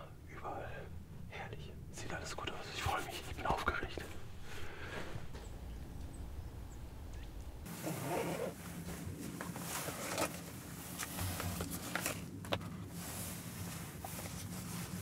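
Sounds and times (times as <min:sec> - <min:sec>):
steady low hum: 0:00.0 - 0:15.0
clothing and gear rustling: 0:07.6 - 0:15.0.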